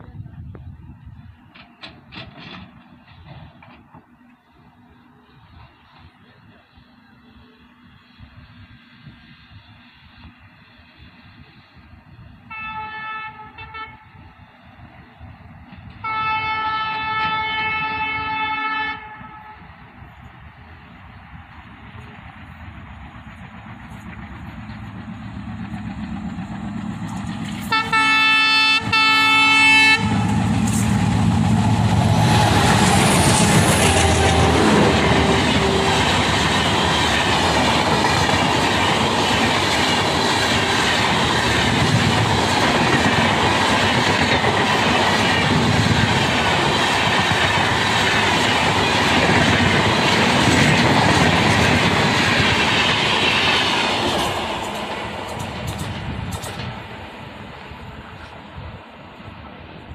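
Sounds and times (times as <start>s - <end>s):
train wheels clattering past: 1.4s - 4.5s, 21.6s - 58.5s
train horn blasts: 12.5s - 14.3s, 16.0s - 19.8s, 27.6s - 30.9s, 31.7s - 36.5s.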